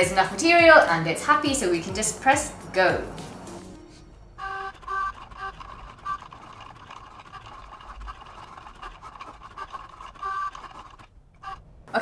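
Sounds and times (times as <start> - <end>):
cutting machine motors whirring: 4.2 - 12.0.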